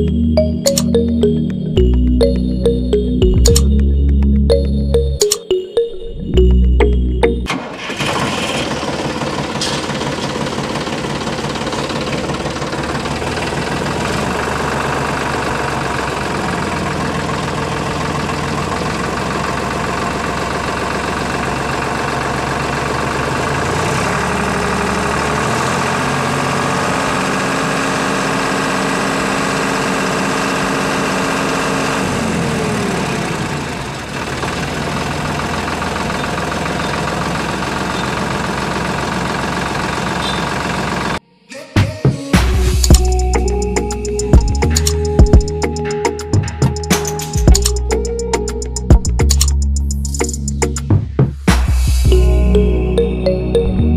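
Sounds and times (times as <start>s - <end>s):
diesel engine idling: 6.4s - 41.2s, 42.8s - 50.4s.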